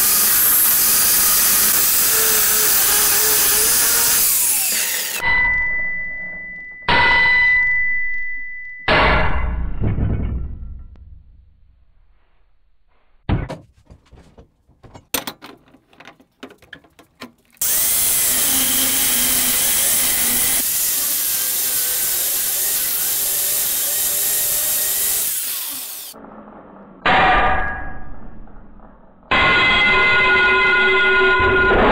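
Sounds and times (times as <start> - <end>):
angle grinder cutting steel: 0.0 - 5.3, 17.6 - 26.2
clicks and clanks: 13.4 - 17.6.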